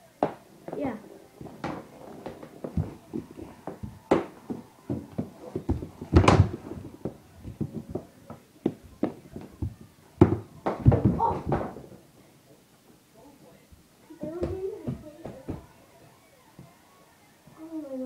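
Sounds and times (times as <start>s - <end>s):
hockey sticks knocking on hardwood floor: 0.2s - 12.0s, 14.2s - 15.7s
heavy bumps on floor: 1.4s - 12.0s.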